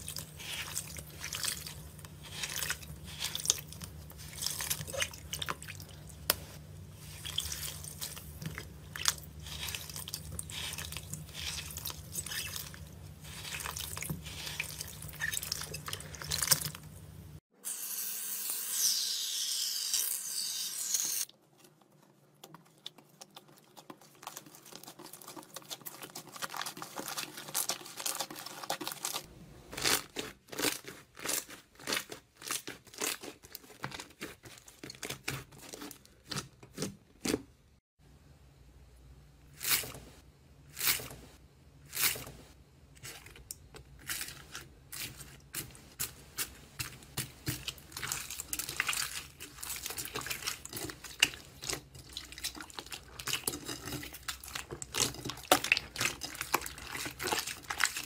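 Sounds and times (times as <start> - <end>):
wet foam crackling and squelching: 0.0 - 17.2, 42.0 - 58.0.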